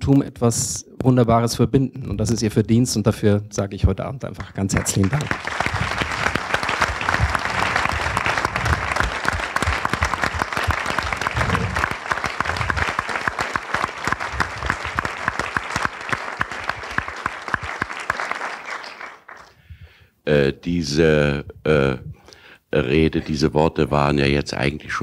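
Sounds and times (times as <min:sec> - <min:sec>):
audience applauding: 0:04.6 - 0:19.5.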